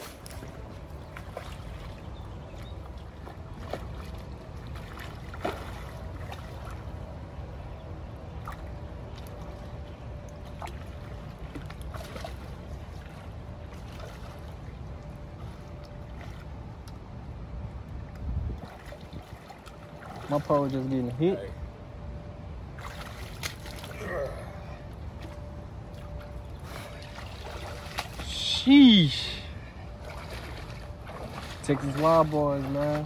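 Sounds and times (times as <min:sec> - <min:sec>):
fish splashing in shallow water: 0:00.0 - 0:17.2, 0:18.5 - 0:21.6, 0:22.6 - 0:33.0
wind rumble on microphone: 0:00.0 - 0:20.4.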